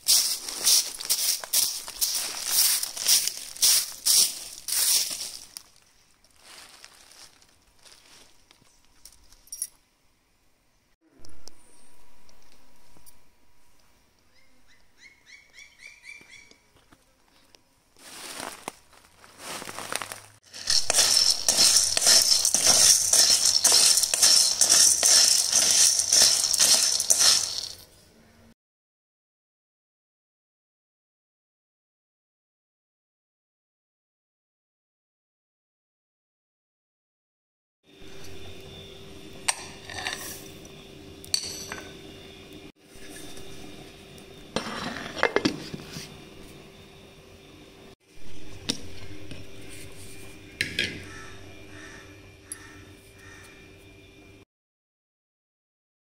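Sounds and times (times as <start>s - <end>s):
chickpeas rattling in a metal pan: 0.1s - 5.4s, 20.5s - 27.8s.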